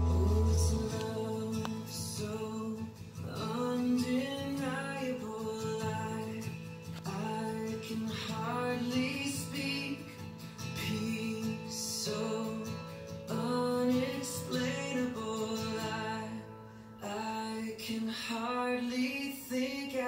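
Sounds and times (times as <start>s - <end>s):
instrumental accompaniment: 0.0s - 1.7s
woman singing worship song: 0.0s - 6.4s.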